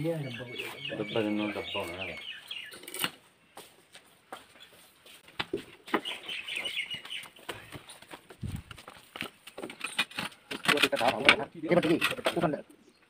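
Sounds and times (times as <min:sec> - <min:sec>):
bird chirping rapidly: 0:00.0 - 0:02.9, 0:06.0 - 0:08.0.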